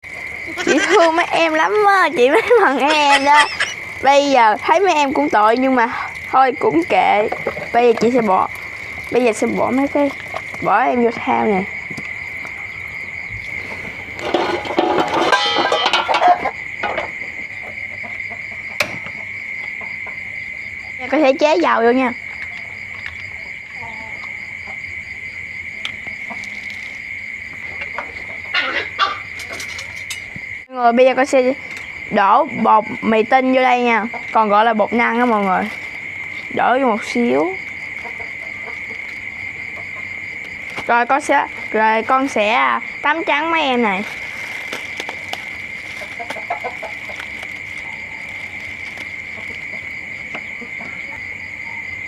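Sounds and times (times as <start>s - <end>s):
crickets chirping: 0.0s - 52.0s
plastic bag crinkling: 43.7s - 49.9s.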